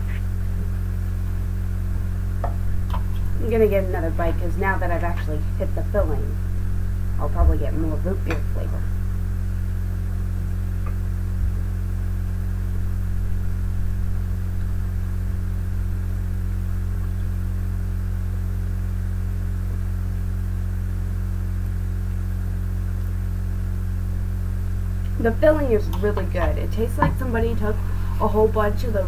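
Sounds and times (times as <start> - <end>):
electrical mains hum: 0.0 - 29.0
faint low bumps: 25.0 - 29.0.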